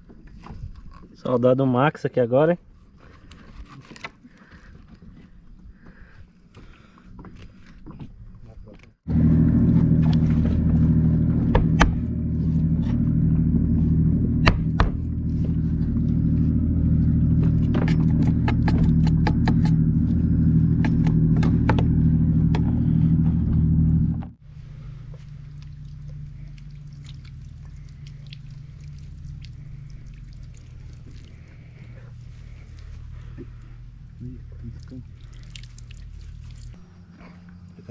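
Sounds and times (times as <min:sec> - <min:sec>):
steady low hum: 0:09.1 - 0:37.9.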